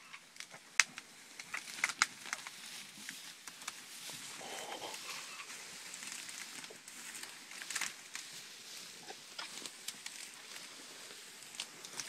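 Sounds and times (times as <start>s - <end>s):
steady hiss: 0.0s - 12.0s
stems and twigs snapping: 0.3s - 4.2s, 6.0s - 8.3s, 9.0s - 10.7s, 11.5s - 12.0s.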